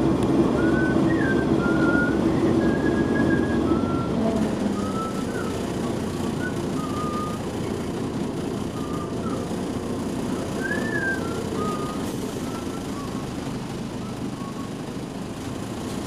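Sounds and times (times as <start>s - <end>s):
bus diesel engine running: 0.0s - 16.0s.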